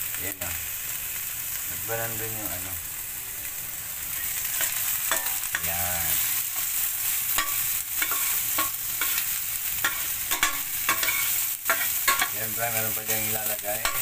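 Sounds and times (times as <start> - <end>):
onion sizzling in hot oil: 0.0 - 14.0
metal spatula scraping a pan: 4.1 - 14.0.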